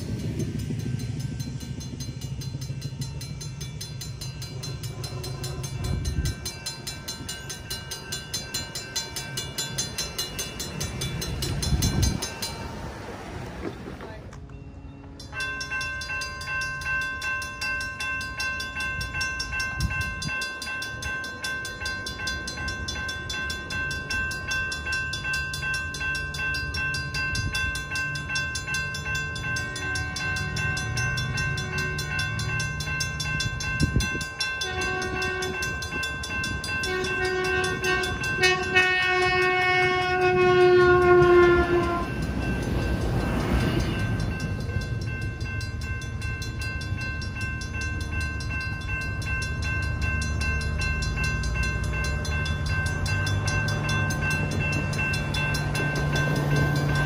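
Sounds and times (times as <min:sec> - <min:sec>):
crossing bell ringing: 0:00.0 - 0:57.0
train passing: 0:00.0 - 0:57.0
train horn blasts: 0:34.5 - 0:36.0, 0:36.6 - 0:42.2.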